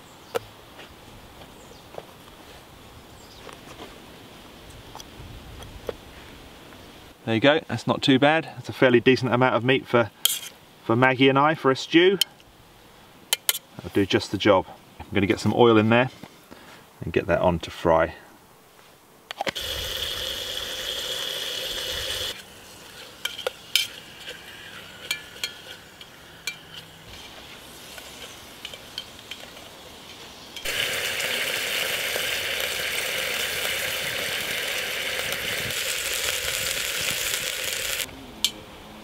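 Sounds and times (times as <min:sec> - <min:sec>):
meat sizzling in oil: 0:19.6 - 0:29.1, 0:30.6 - 0:38.1
utensil clinking on pot: 0:22.9 - 0:27.0.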